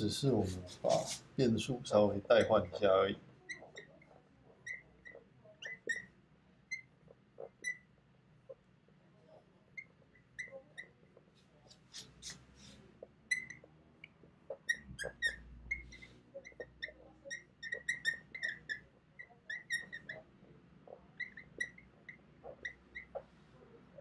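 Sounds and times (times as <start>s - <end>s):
marker squeaking on whiteboard: 0.2s - 1.4s, 2.2s - 8.7s, 9.7s - 24.0s
scratchy marker strokes: 0.3s - 1.4s, 11.3s - 13.0s.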